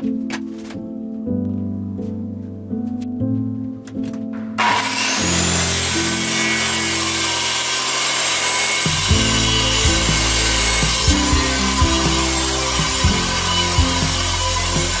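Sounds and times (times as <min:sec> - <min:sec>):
background music: 0:00.0 - 0:15.0
circular saw cutting board: 0:04.6 - 0:15.0.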